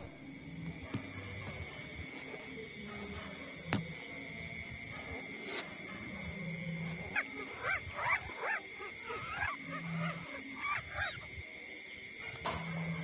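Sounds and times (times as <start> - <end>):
puppies squeaking and whimpering: 6.8 - 11.3.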